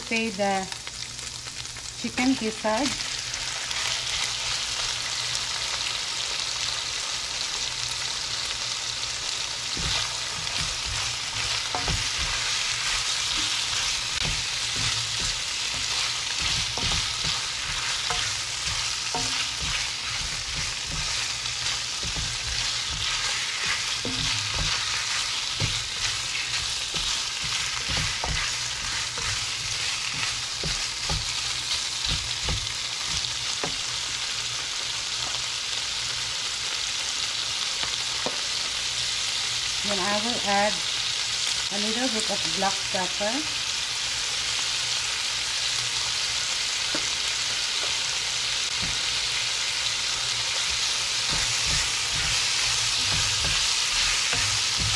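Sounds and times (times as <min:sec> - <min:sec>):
meat sizzling in a pan: 0:00.0 - 0:54.9
spatula stirring in a pan: 0:09.2 - 0:34.4, 0:46.9 - 0:54.9.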